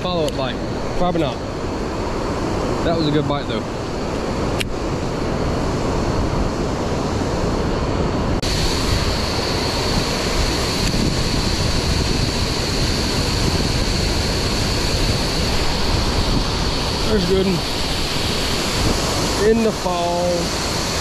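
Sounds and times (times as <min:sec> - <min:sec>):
wind noise on microphone: 0:00.0 - 0:21.0
waterfall over rocks: 0:08.4 - 0:21.0.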